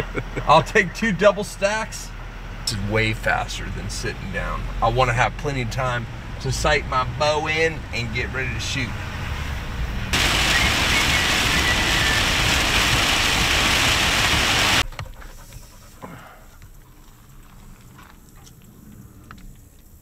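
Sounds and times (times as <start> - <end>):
outdoor background: 0.0 - 20.0
heavy rain on vehicle roof: 10.2 - 14.8.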